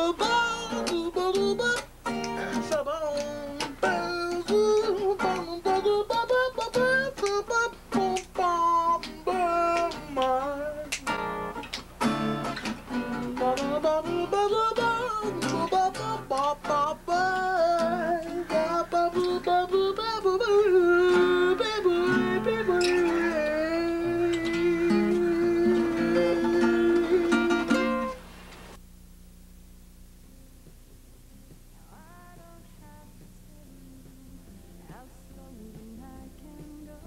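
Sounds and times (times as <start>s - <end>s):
person singing: 0.0s - 11.2s, 13.0s - 28.1s, 31.4s - 37.0s
guitar plucked and strummed: 0.0s - 28.2s.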